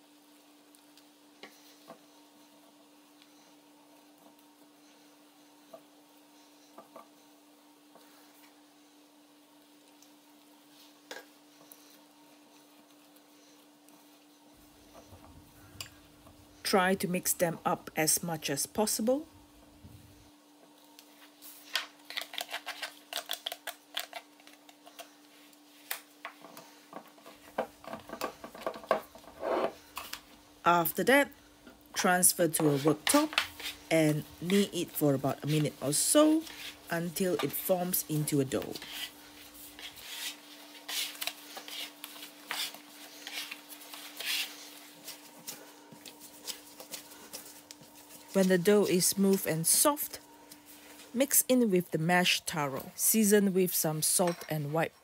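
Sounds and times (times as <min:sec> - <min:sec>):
faint steady hum: 0:00.0 - 0:55.0
scraper scraping dough: 0:38.7 - 0:44.8.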